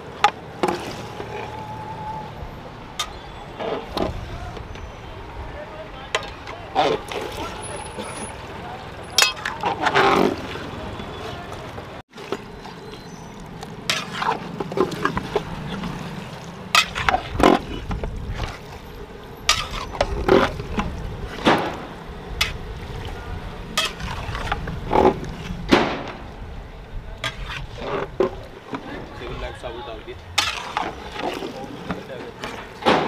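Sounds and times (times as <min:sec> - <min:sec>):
metal ladle scraping a pot: 0:13.9 - 0:16.0, 0:16.7 - 0:18.7, 0:19.4 - 0:20.9, 0:23.8 - 0:25.6, 0:27.2 - 0:28.3, 0:30.4 - 0:32.8.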